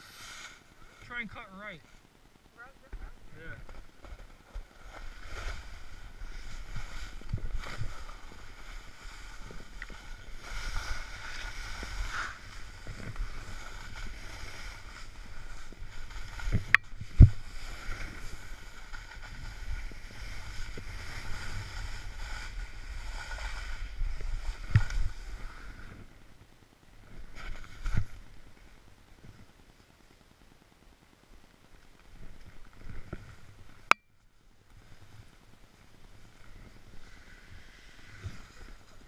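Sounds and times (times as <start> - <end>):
snowboard scraping over snow: 0.0 - 1.9, 3.0 - 26.3, 35.9 - 39.0.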